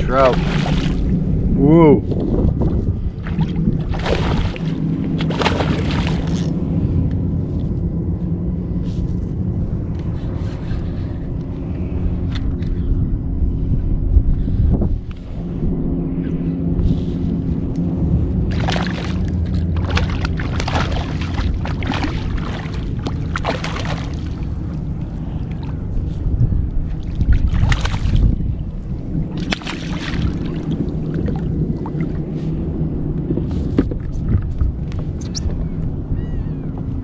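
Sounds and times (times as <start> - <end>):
steady low rumble: 0.0 - 37.0
fish splashing in water: 0.2 - 1.0, 3.2 - 6.5, 18.5 - 24.9, 27.0 - 28.3, 29.3 - 32.2.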